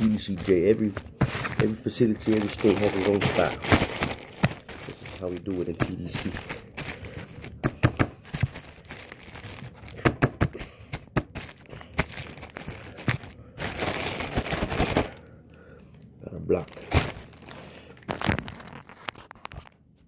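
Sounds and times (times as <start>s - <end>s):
plastic bag crinkling: 0.0s - 15.3s, 16.5s - 19.8s
dough patted against surface: 7.6s - 8.5s.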